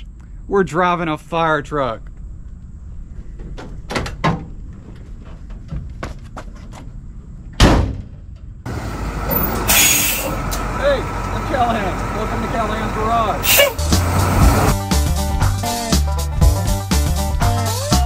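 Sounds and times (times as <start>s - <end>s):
truck door slamming: 7.6s - 8.2s.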